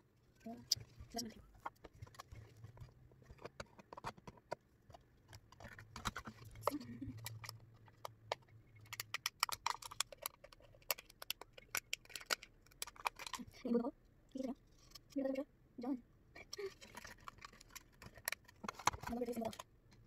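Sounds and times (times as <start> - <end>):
plastic cup and utensil clicking: 3.4 - 13.4.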